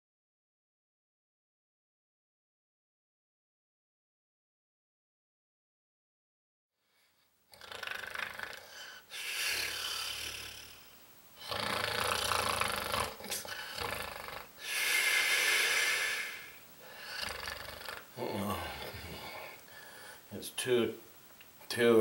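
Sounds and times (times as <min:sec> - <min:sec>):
man snoring: 0:07.0 - 0:20.2.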